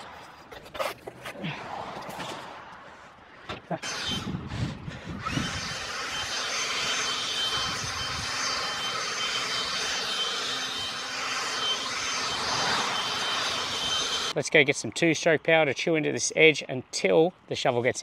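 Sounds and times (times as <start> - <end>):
leaf blower whining: 3.8 - 14.4.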